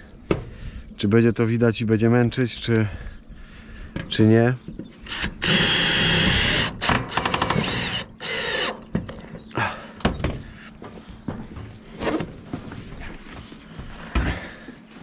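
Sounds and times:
rapid clicks of drill clutch: 5.1 - 8.7
cordless drill motor running: 5.1 - 8.8.

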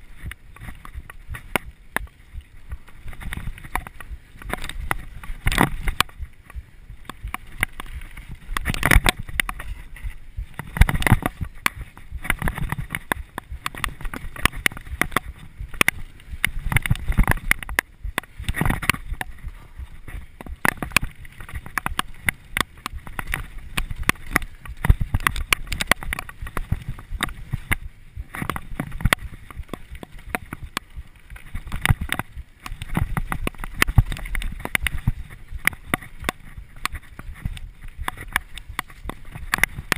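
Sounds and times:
bike knocking and rattling: 0.0 - 39.9
bike tyres rolling on dirt: 0.0 - 39.9
wind rumbling on microphone: 0.0 - 39.9.

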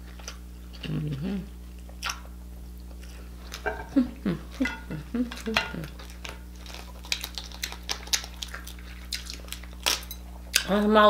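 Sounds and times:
person humming: 0.8 - 1.5, 3.7 - 6.0.

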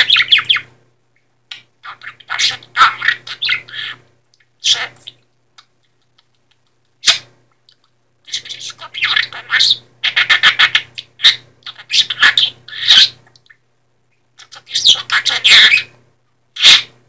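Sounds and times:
budgerigar chattering: 1.5 - 4.0, 4.6 - 5.2, 8.3 - 13.2, 14.4 - 15.9, 16.6 - 16.9.

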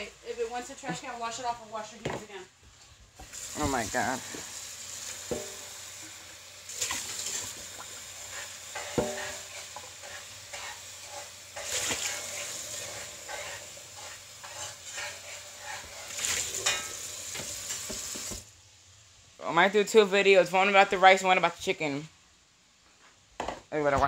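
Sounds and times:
faucet water splashing in sink: 3.2 - 8.5, 11.6 - 12.8, 16.1 - 18.4.

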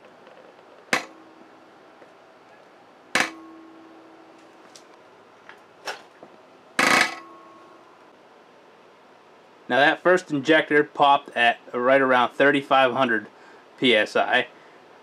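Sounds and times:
sharp metallic snap: 0.9 - 1.5, 3.2 - 4.5.

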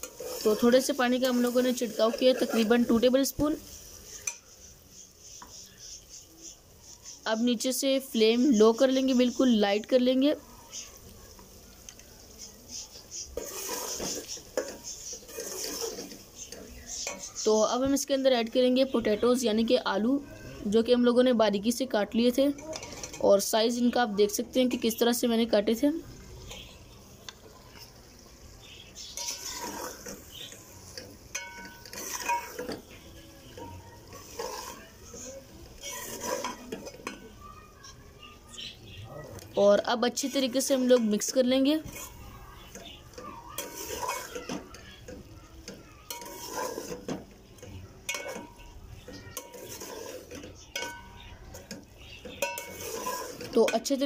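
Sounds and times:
metal spoon scraping a pot: 0.0 - 7.6, 12.8 - 17.7, 22.6 - 23.4, 29.0 - 38.0, 40.0 - 54.0.

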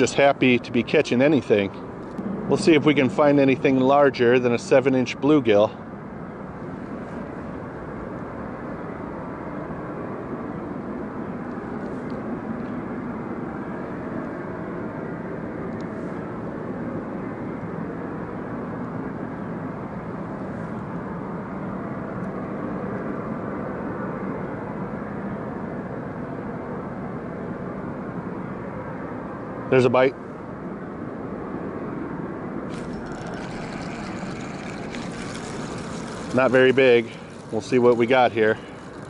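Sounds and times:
power plant roaring: 0.0 - 5.6, 32.6 - 39.0.

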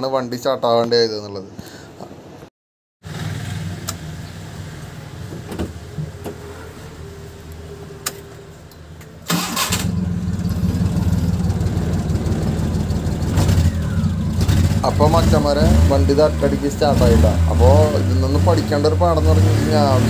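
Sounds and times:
engine running steadily: 3.1 - 20.0
engine cranking: 9.2 - 20.0
low hum: 9.7 - 18.1.

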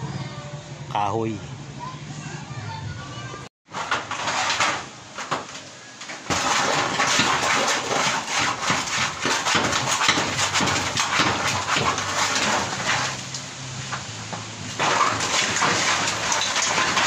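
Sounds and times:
metal roof clattering and rattling: 3.7 - 17.0.

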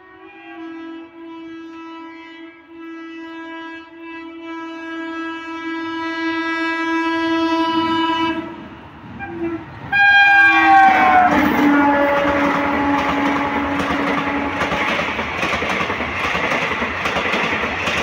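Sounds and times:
locomotive horn blasts: 0.0 - 15.1
train rumbling on rails: 5.2 - 18.0.

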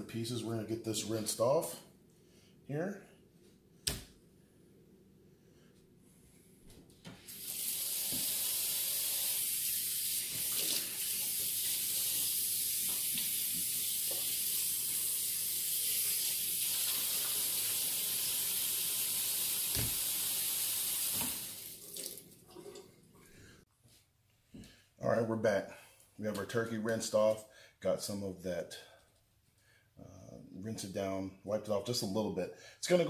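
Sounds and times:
faucet running into metal sink: 7.3 - 22.8.

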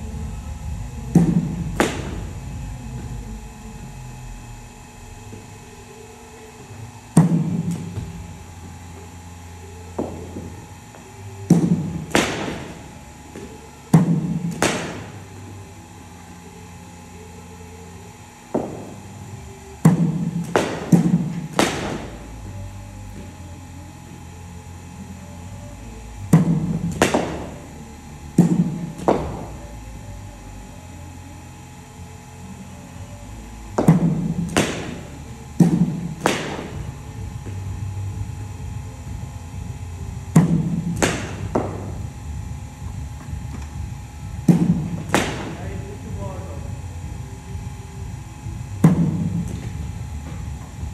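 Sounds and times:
steady low hum: 0.0 - 50.9
cricket bat striking balls: 1.0 - 3.2, 6.6 - 15.5, 18.4 - 24.4, 26.3 - 27.6, 28.3 - 29.7, 33.8 - 46.1, 48.5 - 50.9.

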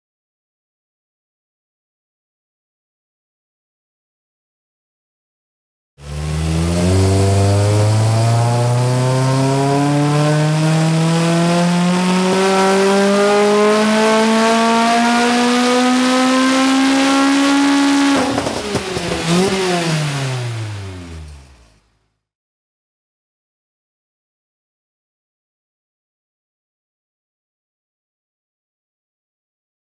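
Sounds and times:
supercharged engine revving: 6.0 - 21.8.

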